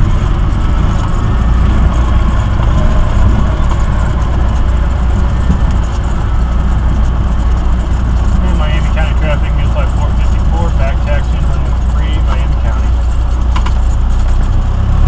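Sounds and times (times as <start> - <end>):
propeller aircraft engine droning: 0.0 - 15.0.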